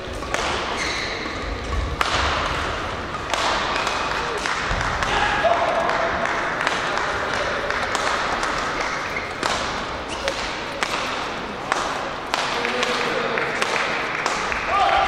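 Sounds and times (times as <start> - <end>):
racket striking shuttlecock: 0.0 - 14.6
murmur of voices: 0.0 - 15.0
shoe squeaks: 0.7 - 1.5, 8.8 - 9.4, 10.1 - 10.4.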